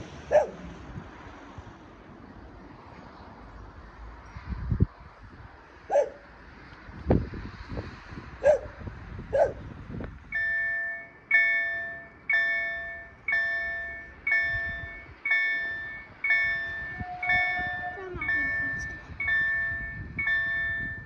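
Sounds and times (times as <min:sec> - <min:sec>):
level crossing bell ringing: 0:10.3 - 0:21.0.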